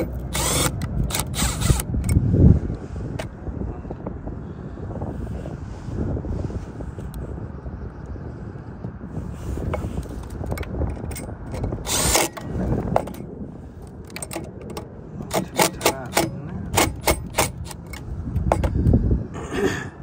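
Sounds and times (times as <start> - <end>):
cordless driver running screw: 0.0 - 2.2, 10.6 - 13.2, 14.1 - 18.8.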